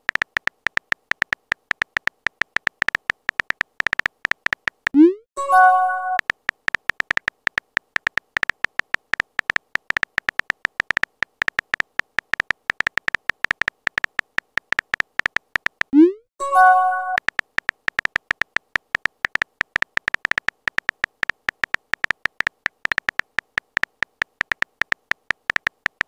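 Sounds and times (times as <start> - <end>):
keyboard tap clicks: 0.0 - 5.0, 6.2 - 16.0, 17.1 - 26.0
short message chime: 5.4 - 6.2, 16.4 - 17.2.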